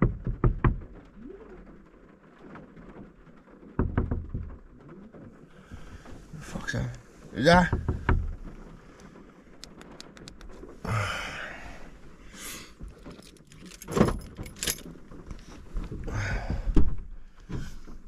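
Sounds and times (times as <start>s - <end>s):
light clicks: 9.0s - 10.6s.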